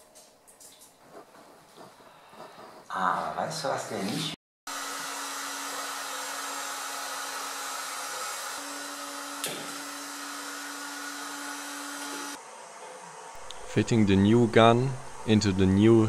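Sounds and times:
gas burners hissing: 7.0s - 16.0s
low hum: 13.4s - 16.0s.

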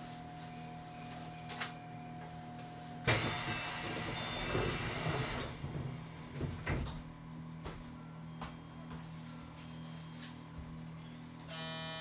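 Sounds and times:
low electrical hum: 0.0s - 3.1s, 6.0s - 12.0s
compressed air hissing from train: 3.1s - 5.5s.

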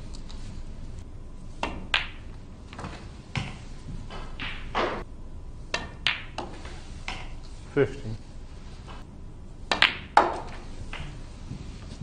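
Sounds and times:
cue striking ball: 1.6s - 5.1s, 5.7s - 7.4s, 9.6s - 11.3s
snooker balls clicking: 1.6s - 7.6s, 9.6s - 11.4s.

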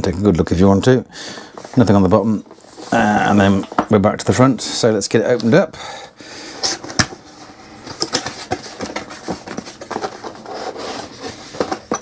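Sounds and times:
cardboard packaging being opened: 7.9s - 12.0s.

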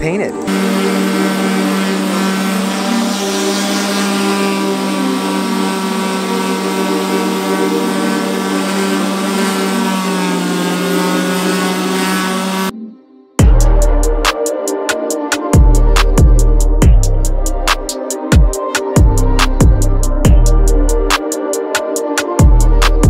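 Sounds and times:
orbital sander sanding metal: 0.0s - 12.7s.

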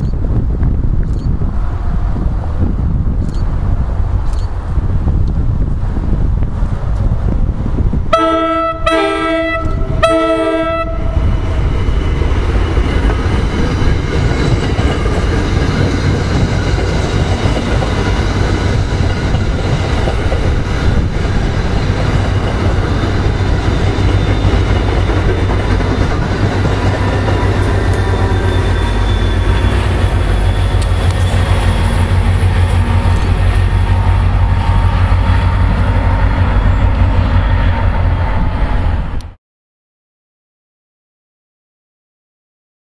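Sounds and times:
diesel locomotive engine droning: 0.0s - 39.4s
train horn blasts: 8.1s - 11.4s
train wheels on rails clattering: 11.7s - 35.8s.

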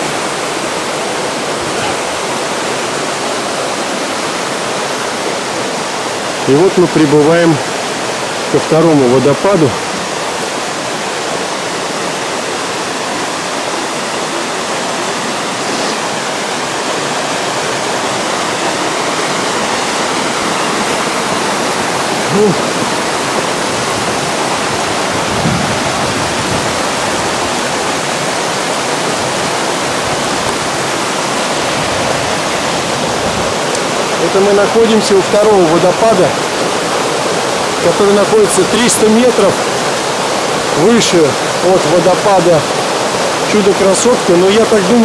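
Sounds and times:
waterfall and stream rushing: 0.0s - 45.0s.

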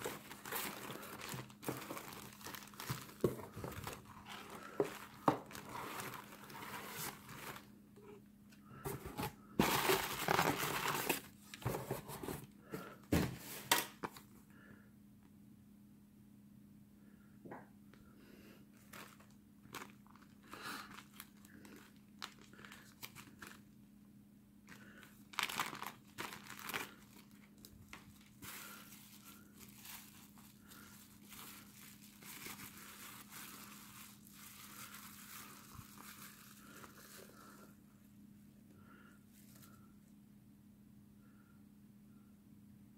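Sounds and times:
plastic bags crinkling: 0.0s - 7.7s, 8.9s - 11.9s, 18.8s - 23.7s, 24.7s - 37.6s.

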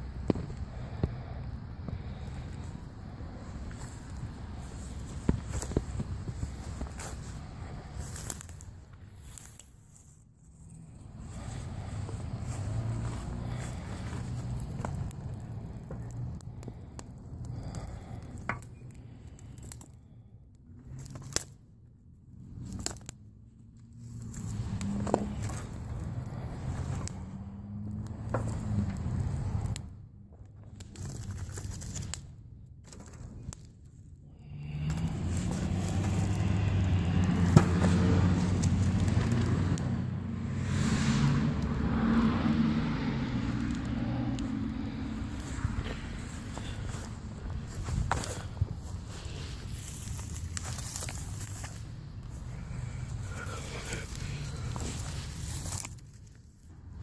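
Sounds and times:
vehicle engine hum: 0.0s - 9.6s, 10.5s - 19.4s, 22.3s - 32.1s, 34.2s - 57.0s
footsteps on grass and gravel: 2.0s - 9.6s, 10.5s - 15.2s, 34.8s - 39.8s, 44.4s - 56.2s.

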